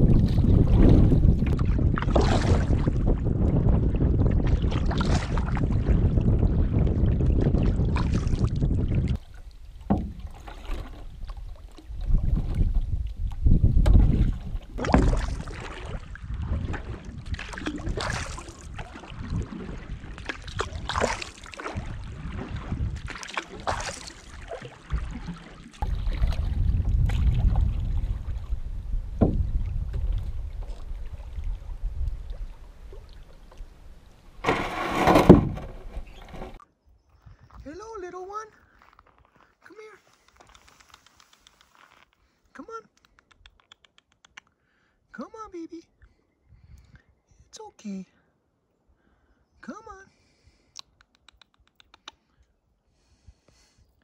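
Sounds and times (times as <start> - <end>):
wind rumbling on microphone: 0.0 - 23.7, 24.9 - 38.0, 46.4 - 47.3
water splashing along canoe hull: 0.0 - 36.6.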